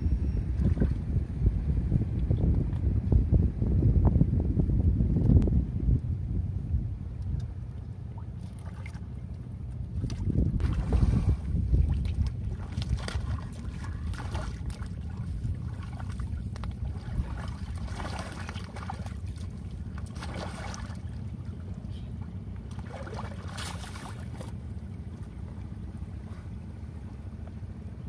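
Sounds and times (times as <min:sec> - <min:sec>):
wind rumble on microphone: 0:00.0 - 0:28.0
seawater sloshing and splashing: 0:07.7 - 0:27.8.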